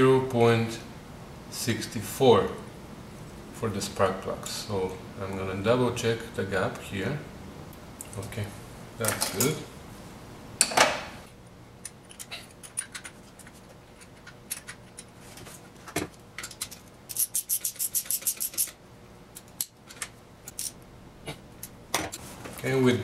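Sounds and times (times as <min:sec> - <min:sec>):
ratchet clicking: 0:17.1 - 0:18.7.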